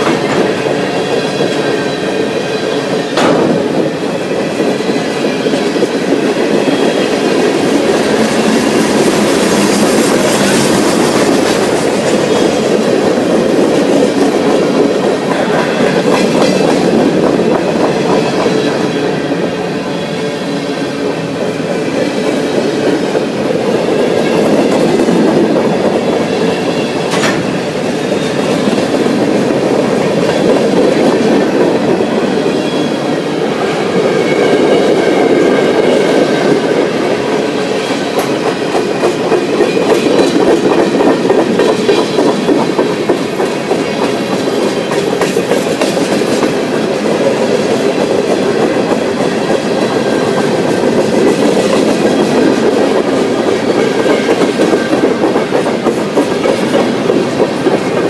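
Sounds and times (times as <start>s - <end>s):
high tones from train wheels: 0.0s - 58.0s
train wheels rumbling on rails: 0.0s - 58.0s.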